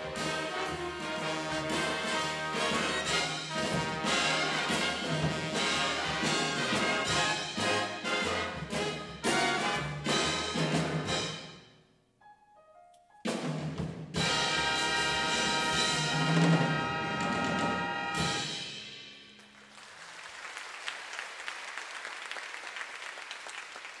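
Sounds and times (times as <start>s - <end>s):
big band playing swing: 0.0s - 11.6s, 13.3s - 19.7s
audience applause: 19.5s - 24.0s.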